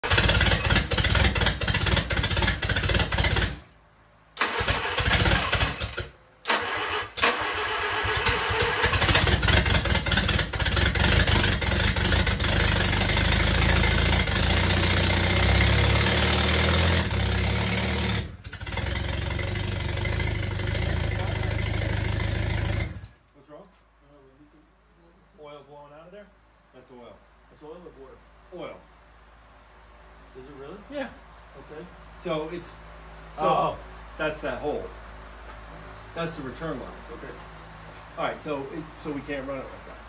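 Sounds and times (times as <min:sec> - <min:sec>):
starter cranking engine: 0:00.0 - 0:03.6, 0:04.4 - 0:23.1
engine running: 0:00.0 - 0:23.2.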